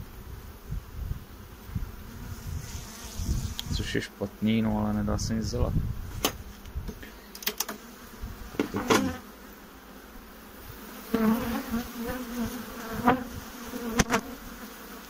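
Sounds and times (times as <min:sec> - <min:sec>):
honeybees buzzing: 0:00.0 - 0:15.0
metal hive tool clicking on wood: 0:07.3 - 0:07.8.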